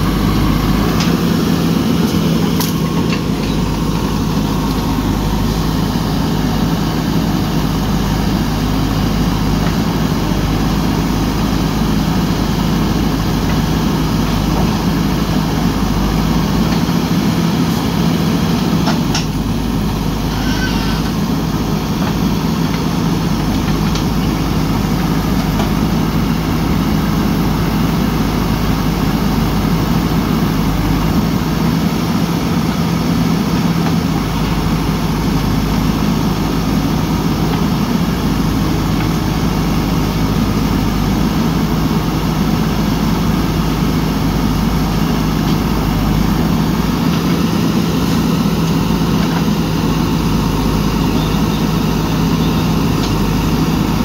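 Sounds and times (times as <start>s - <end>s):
backhoe arm digging: 0.0s - 6.3s
diesel engine running: 0.0s - 54.0s.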